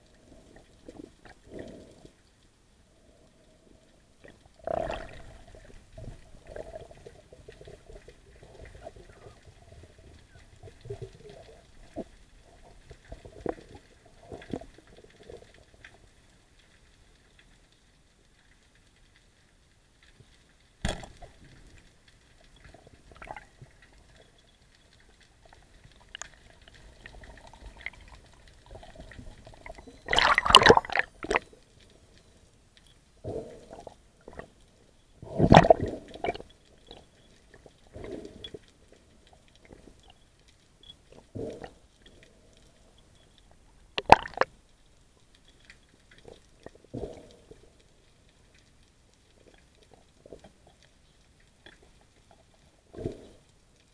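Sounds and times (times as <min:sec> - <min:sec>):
underwater gurgling and knocks: 0:04.6 - 0:15.9, 0:20.8 - 0:21.8, 0:25.4 - 0:31.5, 0:35.2 - 0:37.0, 0:43.9 - 0:44.6.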